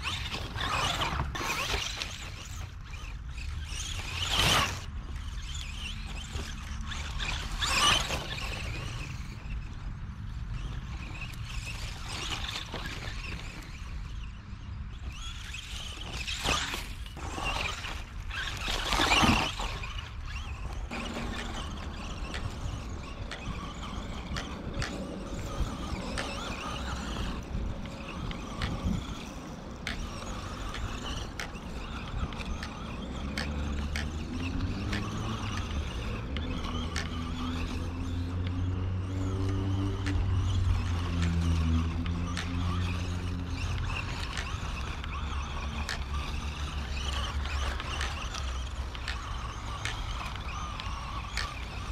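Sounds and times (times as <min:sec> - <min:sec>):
rc truck motor whining: 0:00.0 - 0:51.9
tyres crunching on dirt: 0:15.1 - 0:51.9.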